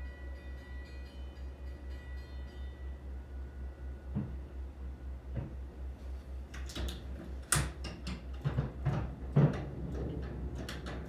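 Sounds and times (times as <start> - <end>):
steady low hum: 0.0 - 11.0
sharp knocks and clicks: 6.6 - 11.0.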